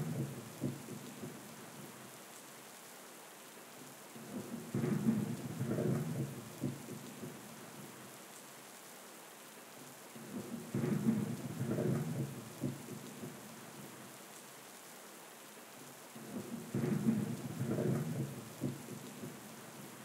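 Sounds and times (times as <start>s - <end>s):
rain falling: 0.0s - 20.0s
thunder rumbling: 4.5s - 6.8s, 10.6s - 12.8s, 16.6s - 19.0s.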